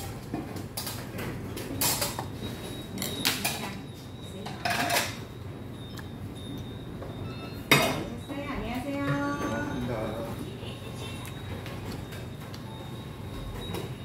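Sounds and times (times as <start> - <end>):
metal tableware clinking: 4.5 - 5.2.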